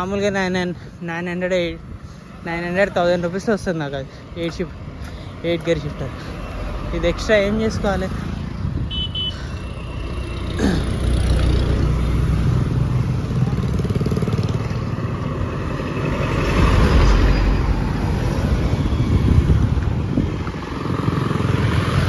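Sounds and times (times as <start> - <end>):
highway traffic rumble: 0.0 - 22.0.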